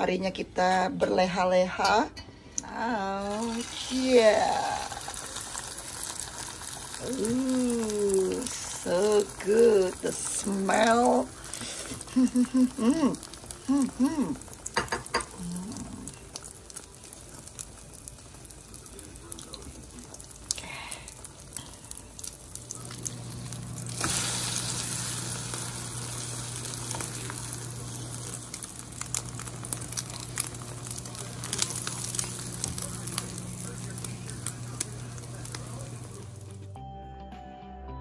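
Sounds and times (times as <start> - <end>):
omelette sizzling in a pan: 3.0 - 36.7
low hum: 20.1 - 36.8.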